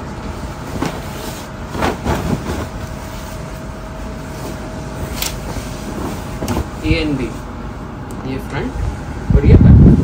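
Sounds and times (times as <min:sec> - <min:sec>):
steady background hum: 0:00.0 - 0:10.0
comforter fabric rustling: 0:00.6 - 0:07.3.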